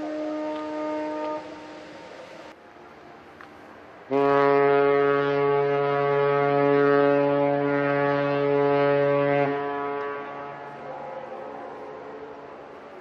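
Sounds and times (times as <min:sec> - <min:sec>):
ship's horn blast: 0:00.0 - 0:02.2, 0:04.1 - 0:11.6.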